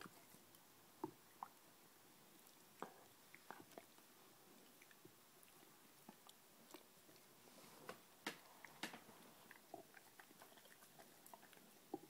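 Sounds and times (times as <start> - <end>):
dog gnawing rubber toy: 8.2 - 12.0.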